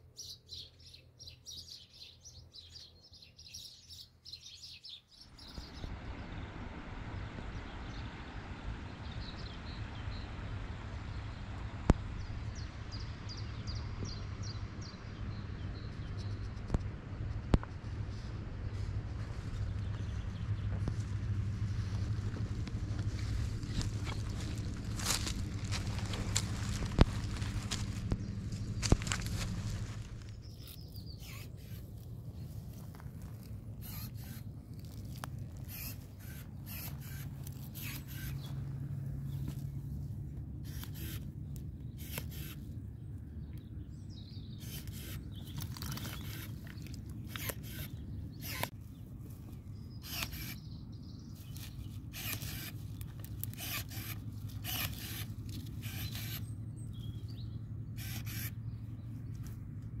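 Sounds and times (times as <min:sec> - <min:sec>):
steady low hum: 0:00.0 - 1:00.0
pruning shears snipping: 0:23.6 - 0:32.0, 0:40.7 - 0:42.7, 0:44.6 - 0:48.8, 0:51.4 - 0:56.5.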